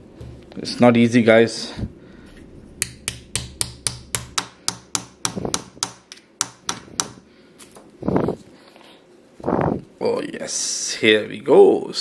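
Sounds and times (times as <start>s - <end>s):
stick tapping plaster: 2.8s - 7.2s.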